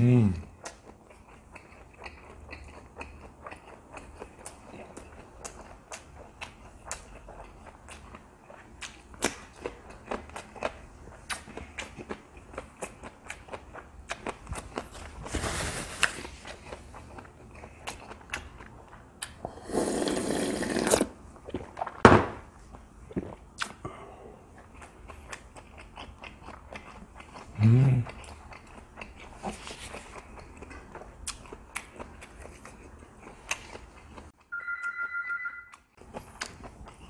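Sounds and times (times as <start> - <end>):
person humming: 0.0 - 0.4, 27.6 - 28.1
person chewing food: 0.4 - 15.4, 16.0 - 20.1, 20.7 - 22.0, 22.6 - 37.0.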